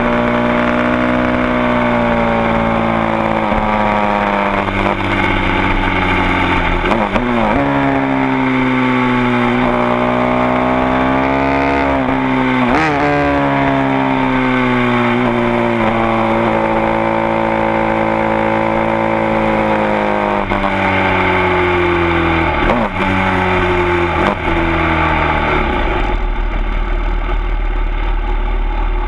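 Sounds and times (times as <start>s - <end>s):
motorcycle engine winding down: 0.0s - 29.0s
motorcycle engine rough idle: 24.4s - 29.0s.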